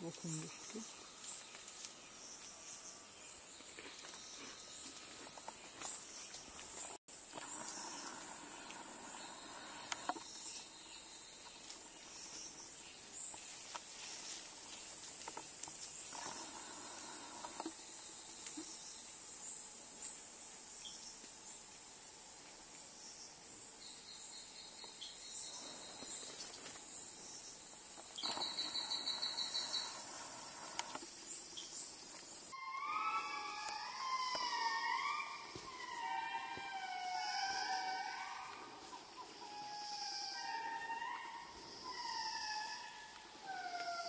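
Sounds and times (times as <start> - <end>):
high-pitched insect drone: 7.2 - 11.3, 32.4 - 44.0
faint chirps and clicks: 9.8 - 10.7.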